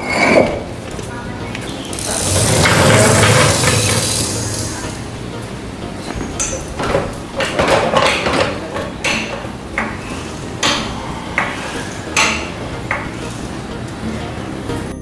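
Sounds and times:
floor jack handle clanking: 1.9 - 5.1, 6.1 - 13.3.

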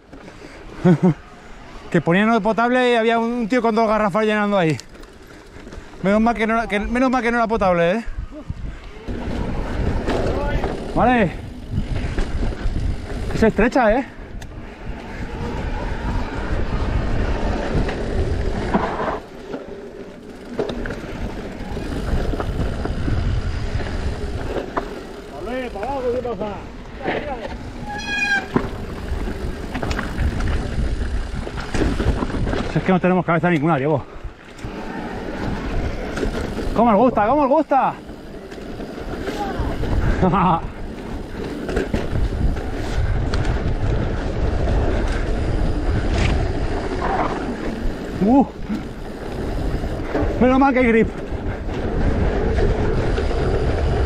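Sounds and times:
bike rattles and knocks: 3.3 - 7.7, 8.6 - 15.5, 16.7 - 54.0
wind rumble on microphone: 6.4 - 19.6, 20.6 - 25.2, 26.0 - 33.0, 38.8 - 54.0
bike knocks and rattles: 17.7 - 33.0.

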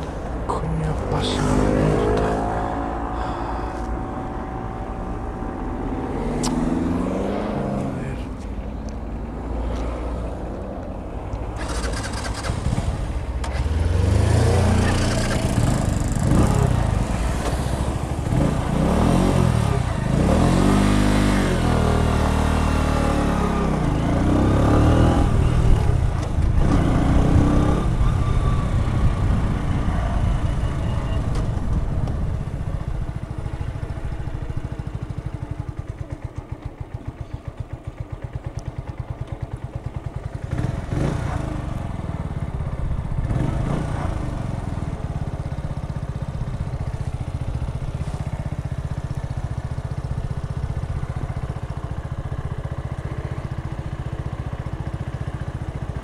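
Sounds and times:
motorcycle engine revving: 0.0 - 8.2, 11.5 - 56.0
wind noise on microphone: 26.4 - 33.2.

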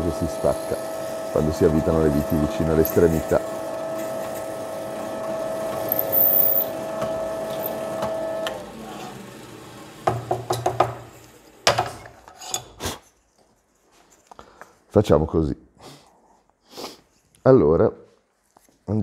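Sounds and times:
electric drill boring into wood: 0.0 - 11.1
knocks and clatters of tools: 10.0 - 12.8.

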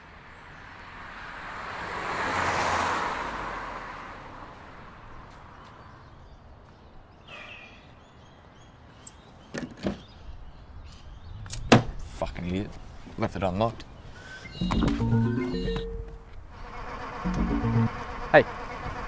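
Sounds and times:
car driving past: 1.0 - 4.7.

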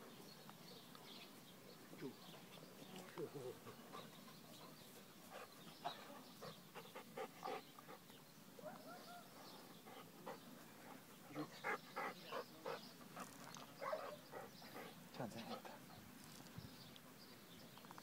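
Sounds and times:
faint dog barking: 8.6 - 9.4, 13.8 - 15.8.

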